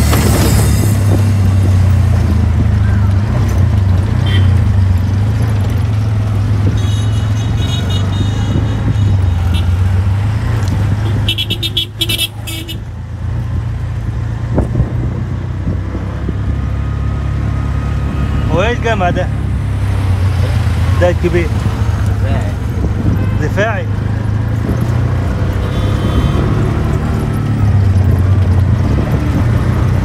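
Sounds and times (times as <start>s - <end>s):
auto-rickshaw engine droning: 0.0s - 30.0s
street traffic: 0.0s - 30.0s
horn beeping: 6.8s - 9.9s, 11.0s - 12.8s, 25.6s - 26.7s.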